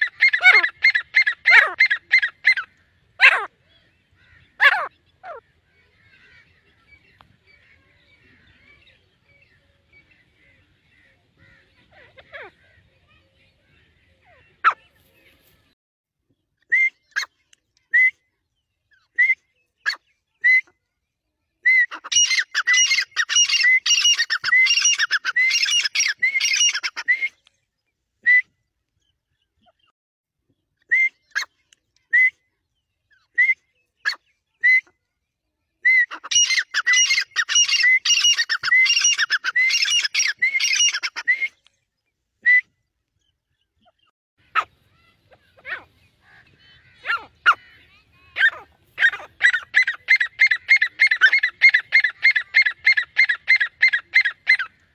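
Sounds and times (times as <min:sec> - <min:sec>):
francolin calling: 0:36.2 - 0:41.5.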